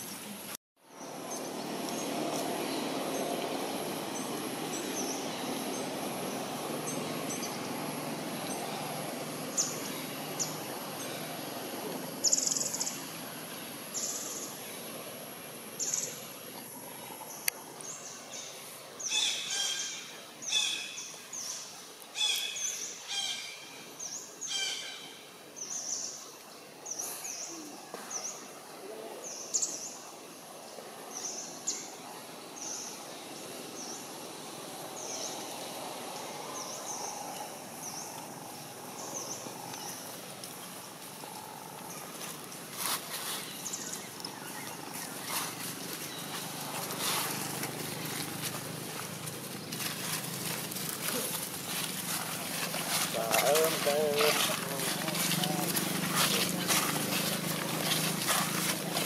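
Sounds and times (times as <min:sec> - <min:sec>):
birds chirping: 0:30.7 - 0:59.0.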